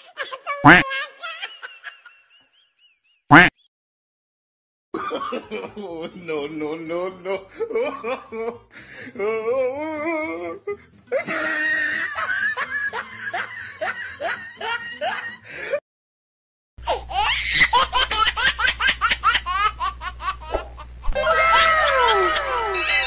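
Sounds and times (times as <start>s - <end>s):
person laughing: 0.0s - 1.8s, 9.2s - 15.3s, 19.5s - 23.0s.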